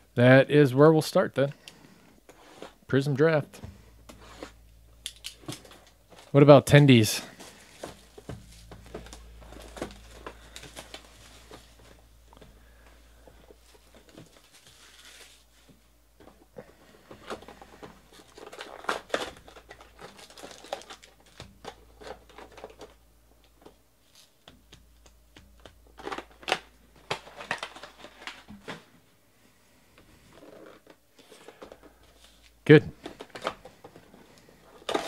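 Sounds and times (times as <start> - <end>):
plastic shrink wrap crinkling: 3.5 - 29.0, 30.3 - 35.0
foil packs rustling: 5.4 - 24.4, 25.6 - 29.2, 30.2 - 35.0.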